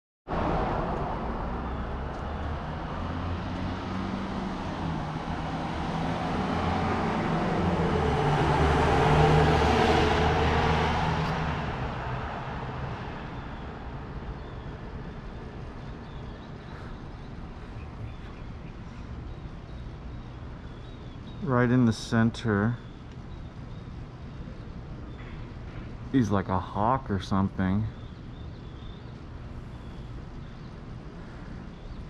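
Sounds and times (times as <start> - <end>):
vehicle passing by: 0.3 - 19.2.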